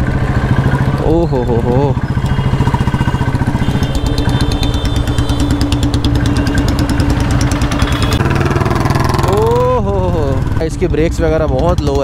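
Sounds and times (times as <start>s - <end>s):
motorcycle engine thumping: 2.0s - 9.3s.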